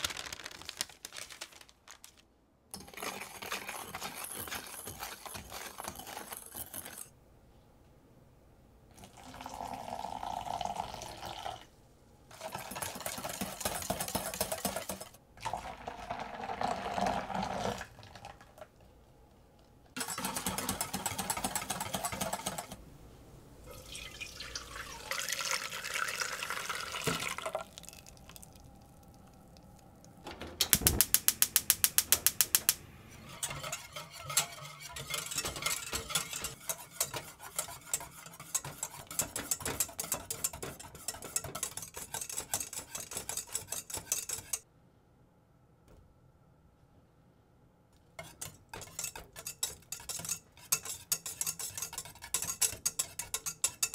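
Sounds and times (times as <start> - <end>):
stirring: 2.8 - 7.1, 12.3 - 18.8, 20.0 - 22.8, 31.2 - 44.6, 48.2 - 53.9
wire whisk beating in pan: 2.8 - 7.1, 12.5 - 15.2, 20.0 - 22.8, 30.6 - 44.6, 48.2 - 53.9
milk pouring into bowl: 15.4 - 18.7, 23.7 - 29.7.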